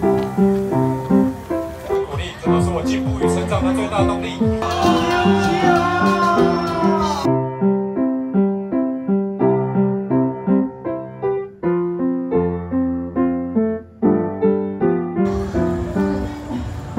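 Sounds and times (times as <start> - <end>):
piano music: 0.0 - 16.9.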